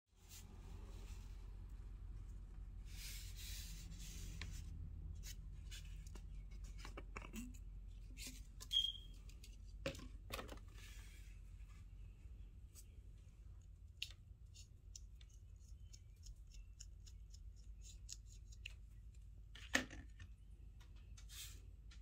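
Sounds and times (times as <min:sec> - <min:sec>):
short high-pitched squeak: 0:08.7 - 0:09.1.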